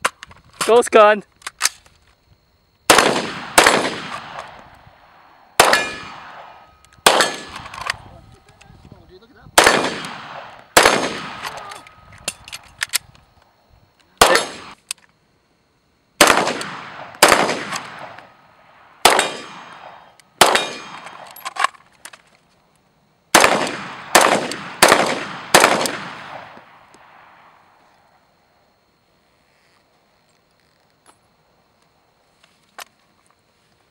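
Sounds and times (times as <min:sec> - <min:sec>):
rifle shots with echo: 0:02.9 - 0:08.1, 0:09.6 - 0:11.7, 0:14.2 - 0:14.8, 0:16.2 - 0:21.4, 0:23.3 - 0:27.7.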